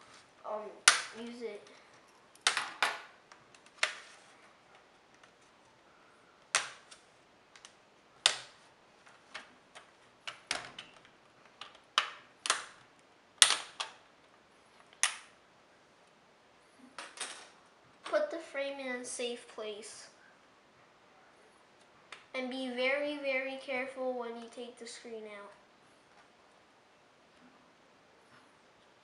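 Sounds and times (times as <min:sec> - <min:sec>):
plastic clips snapping loose: 0:09.4 - 0:12.8.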